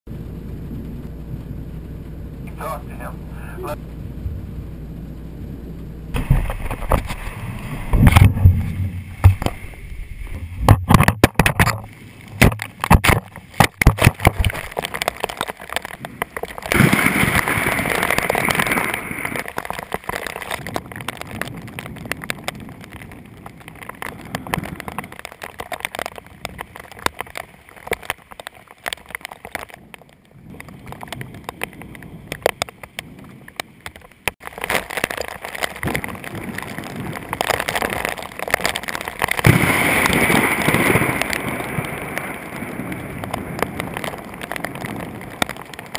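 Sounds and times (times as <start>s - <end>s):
rain pattering: 0.1s - 45.9s
rushing rain: 0.1s - 45.9s.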